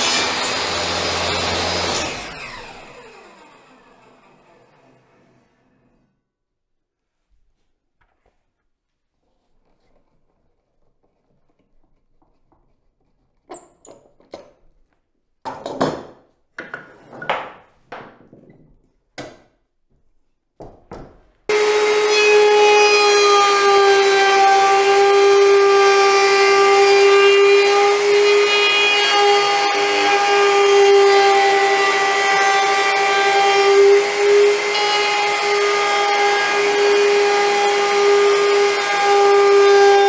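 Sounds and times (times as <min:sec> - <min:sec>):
router whining cutting wood: 0:00.0 - 0:06.0, 0:21.5 - 0:40.0.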